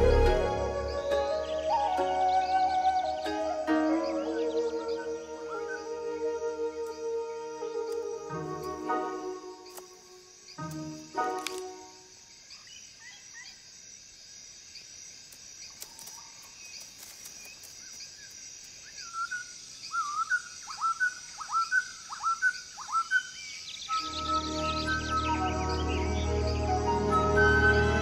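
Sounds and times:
downward whistled bird calls: 0.0s - 9.9s, 18.8s - 28.0s
music: 0.0s - 9.9s, 10.6s - 12.0s, 23.9s - 28.0s
faint bird chirps: 0.0s - 13.6s, 15.6s - 28.0s
insect drone: 0.0s - 28.0s.

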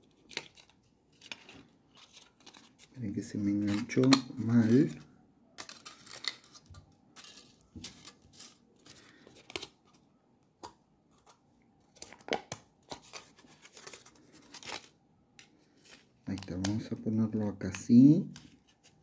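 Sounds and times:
aluminium foil crinkling: 0.0s - 5.0s, 5.6s - 10.0s, 11.9s - 15.0s.

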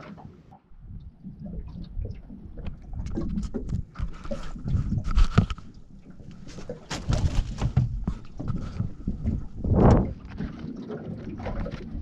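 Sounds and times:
fish flapping in net: 6.4s - 8.7s
knocks and thumps on boat deck: 6.5s - 10.3s.

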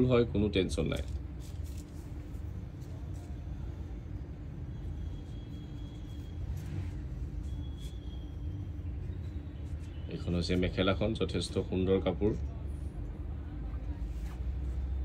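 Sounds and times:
faint hum: 0.0s - 15.0s
low background rumble: 0.0s - 15.0s
soft cloth rustle: 0.9s - 4.4s, 13.8s - 15.0s.

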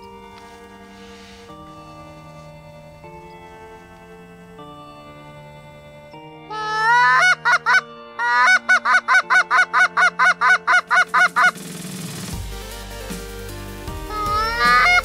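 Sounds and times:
goose honking: 6.5s - 11.6s, 14.1s - 15.0s.

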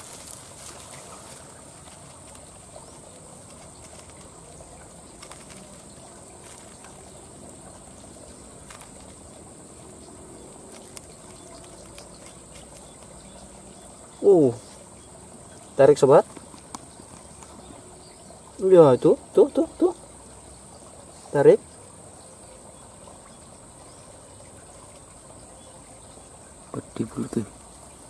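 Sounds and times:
dry grass rustling: 0.0s - 15.6s.

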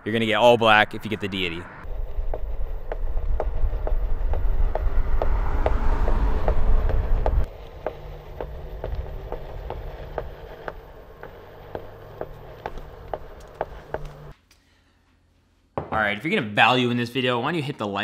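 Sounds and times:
faint steady whine: 0.1s - 14.3s
wheel rumble on concrete: 0.4s - 14.4s
regular ticking: 1.8s - 14.4s.

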